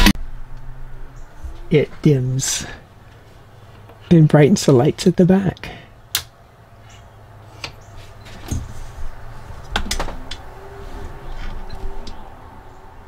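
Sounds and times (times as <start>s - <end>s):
low steady rumble: 0.0s - 13.0s
sharp clicks and knocks: 6.1s - 6.3s, 9.6s - 10.4s.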